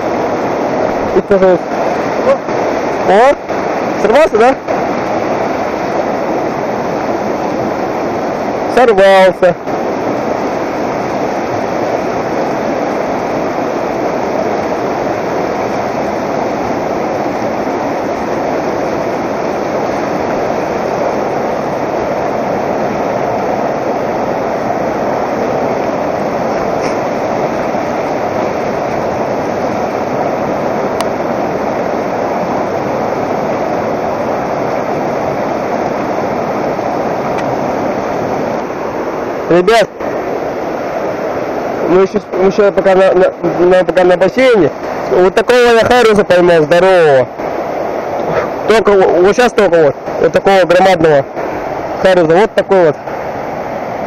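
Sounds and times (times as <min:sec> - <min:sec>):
river rushing over stones: 0:00.0 - 0:54.0.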